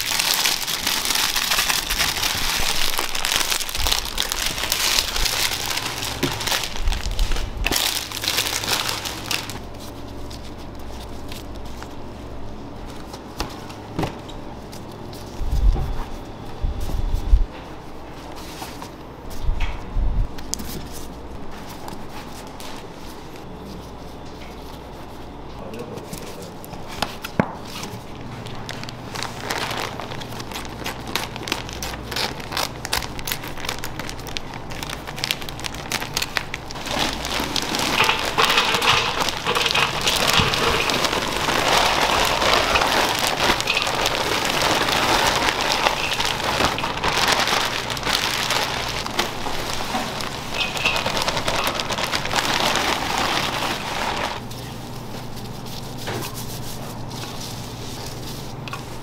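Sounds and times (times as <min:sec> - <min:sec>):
raw beef crackling in a bowl: 0:00.0 - 0:12.0, 0:28.2 - 0:59.0.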